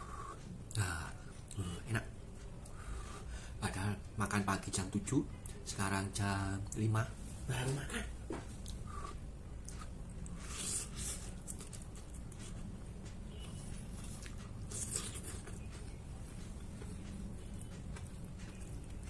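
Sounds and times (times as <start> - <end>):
steady low hum: 0.0 - 19.0
man eating noodles: 8.6 - 19.0.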